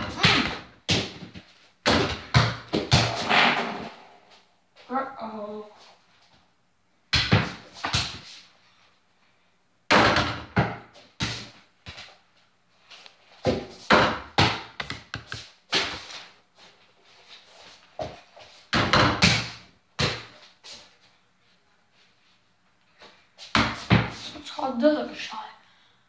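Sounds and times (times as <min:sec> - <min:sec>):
ball bouncing on floor: 0:00.0 - 0:03.8, 0:07.1 - 0:08.2, 0:09.9 - 0:11.5, 0:13.4 - 0:16.0, 0:18.7 - 0:20.3
ball hitting hoop and backboard: 0:00.0 - 0:04.1, 0:07.1 - 0:08.2, 0:09.9 - 0:11.5, 0:13.4 - 0:16.0, 0:18.7 - 0:20.4, 0:23.5 - 0:24.2.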